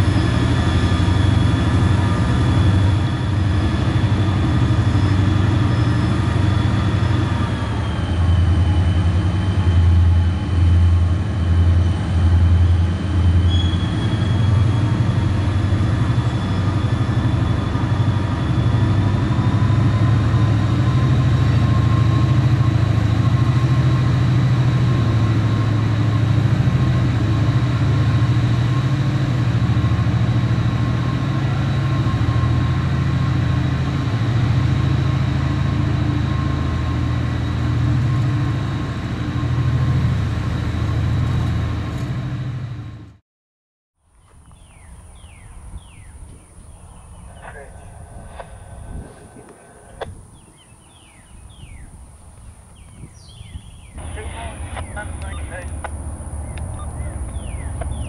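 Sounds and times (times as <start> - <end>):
diesel locomotive engine: 0.0 - 43.2, 44.0 - 58.0
high whine: 53.9 - 58.0.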